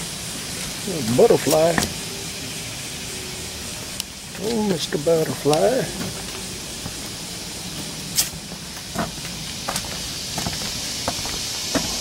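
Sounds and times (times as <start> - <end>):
steady hiss: 0.0 - 12.0
footsteps walking: 0.6 - 2.0, 4.3 - 12.0.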